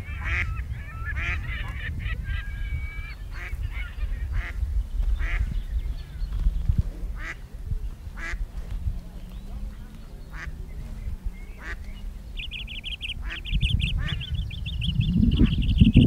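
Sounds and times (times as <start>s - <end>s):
waterfowl calling: 0.0s - 4.6s, 5.2s - 6.4s, 7.0s - 16.0s
wind rumbling on microphone: 0.0s - 16.0s
small bird trilling: 11.5s - 16.0s.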